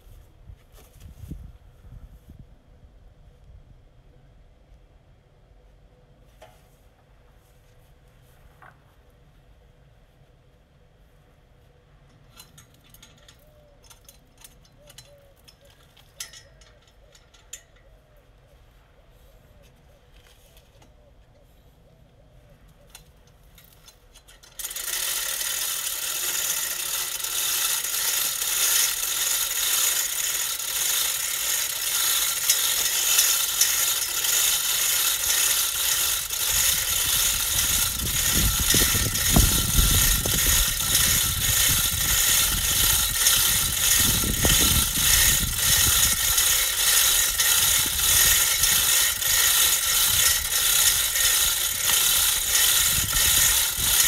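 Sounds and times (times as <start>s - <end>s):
chain hoist chain clattering: 12.3s - 17.8s, 23.6s - 54.0s
ratcheting clicks: 12.3s - 17.9s, 22.9s - 54.0s.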